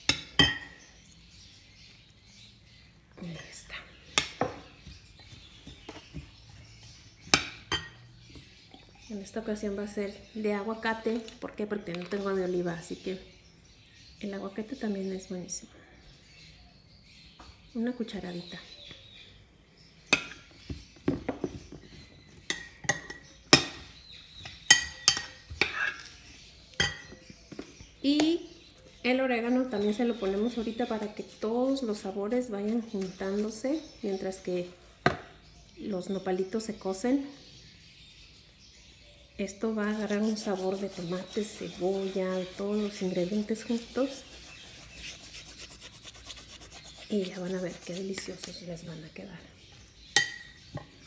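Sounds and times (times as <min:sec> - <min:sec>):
spoon stirring vegetables: 0:39.7 - 0:48.6.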